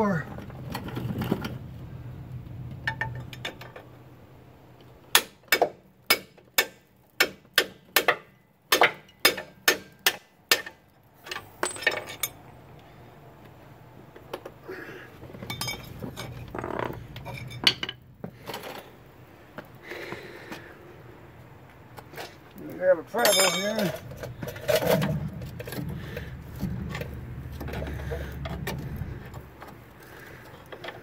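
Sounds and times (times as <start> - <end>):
metal clinks and tool handling: 11.3 - 12.5, 15.4 - 16.5, 17.2 - 18.0, 23.2 - 25.9.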